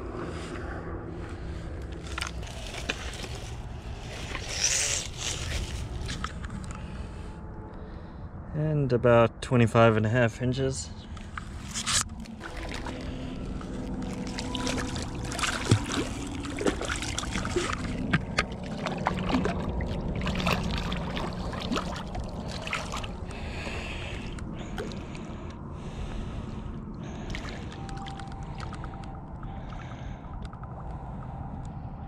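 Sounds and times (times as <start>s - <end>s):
fish splashing in water: 12.2s - 25.2s.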